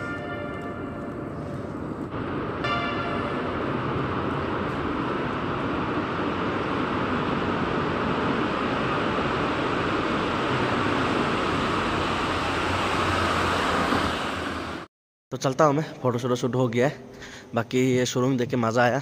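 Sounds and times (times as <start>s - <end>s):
vehicle rushing through tunnel: 0.0s - 14.9s.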